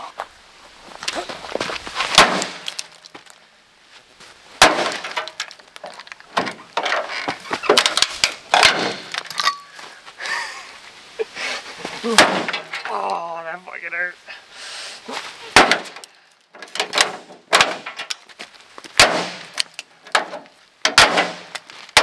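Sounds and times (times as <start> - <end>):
taillight cracking and breaking: 2.0 - 3.4, 4.6 - 9.5, 15.5 - 22.0
pieces clinking: 6.8 - 9.7.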